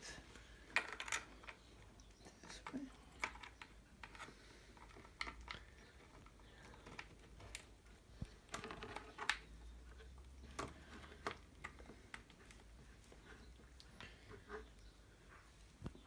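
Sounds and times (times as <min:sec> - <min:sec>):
small parts clicking and tapping: 0:00.3 - 0:12.7.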